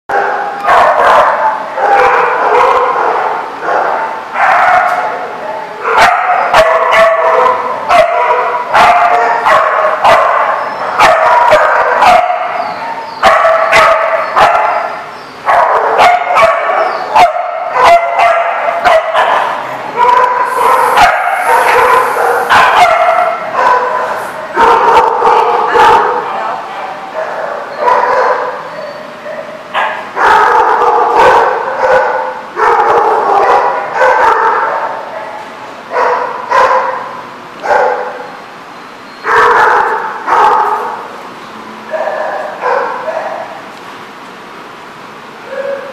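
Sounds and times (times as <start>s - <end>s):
dogs barking and yipping: 0.1s - 26.3s, 27.1s - 38.4s, 39.2s - 41.1s, 41.9s - 43.6s.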